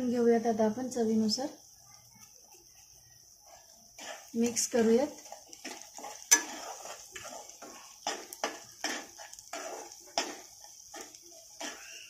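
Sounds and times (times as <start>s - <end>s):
spoon scraping paste in pan: 3.4s - 12.0s
metal clink on pan: 6.3s - 6.6s.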